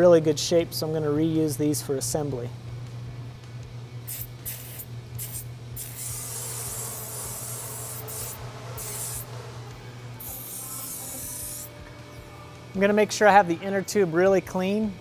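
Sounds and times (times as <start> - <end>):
aerosol spray can hissing: 4.1 - 9.3, 10.2 - 11.7.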